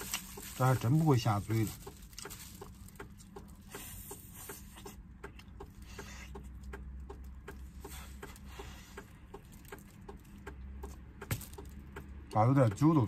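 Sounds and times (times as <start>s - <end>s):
wet chewing and lip-smacking: 1.8s - 11.0s.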